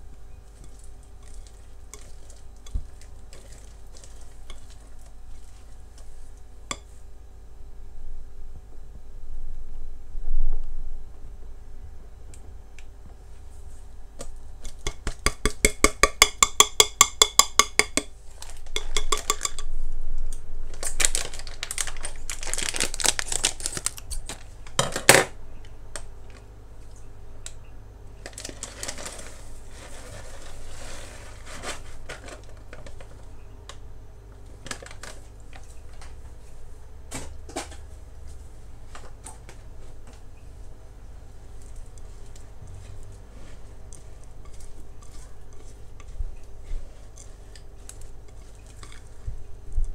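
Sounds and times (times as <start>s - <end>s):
utensils clinking on dishware: 18.7s - 19.7s.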